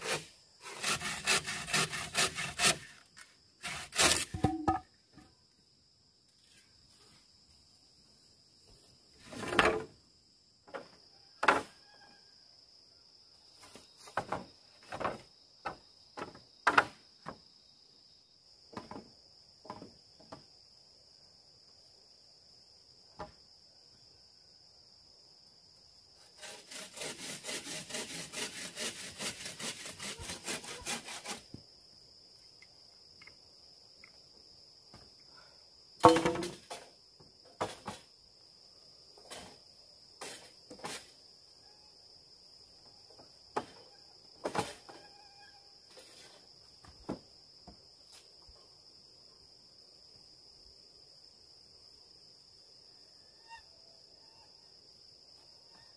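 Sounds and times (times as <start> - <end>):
hand saw cutting bamboo: 0.0 - 3.0, 3.6 - 4.6, 26.4 - 31.5
hollow knocks of bamboo poles: 4.0 - 5.3, 14.0 - 17.4, 18.7 - 20.5, 36.0 - 36.9.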